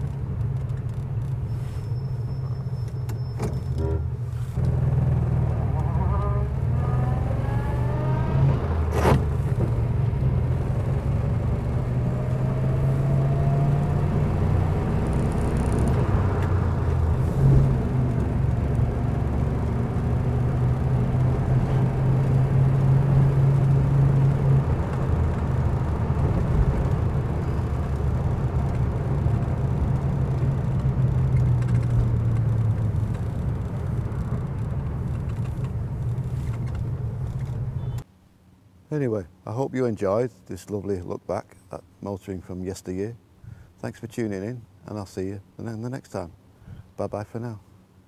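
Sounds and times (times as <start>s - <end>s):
car engine droning in cabin: 0.0s - 38.1s
road noise: 0.0s - 48.0s.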